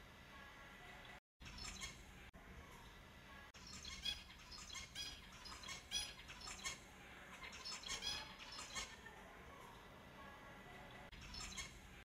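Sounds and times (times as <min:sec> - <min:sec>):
finches chirping: 0:01.4 - 0:02.1, 0:03.6 - 0:09.1, 0:11.1 - 0:11.8.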